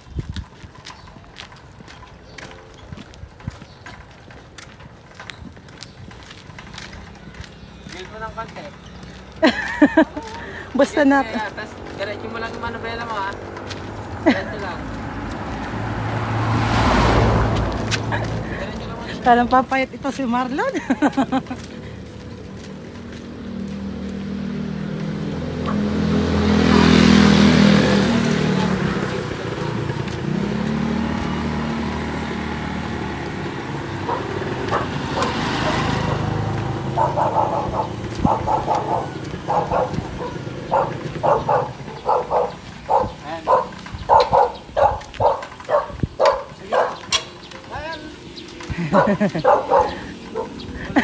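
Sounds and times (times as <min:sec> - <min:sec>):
motorcycle engine passing: 0:06.0 - 0:51.0
dog barking: 0:34.0 - 0:47.2, 0:48.9 - 0:50.6.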